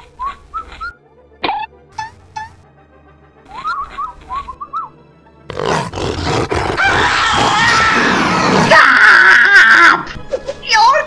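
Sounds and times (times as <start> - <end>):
cartoon voice roaring yell: 6.8 - 10.1.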